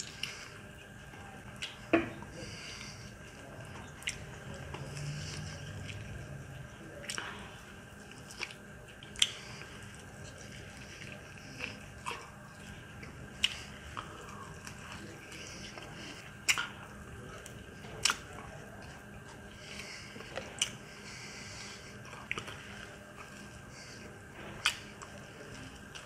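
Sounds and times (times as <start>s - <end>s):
man chewing food: 0.0s - 26.0s
mouth smacks: 1.6s - 2.3s, 15.6s - 18.4s, 20.2s - 20.8s, 24.4s - 25.2s.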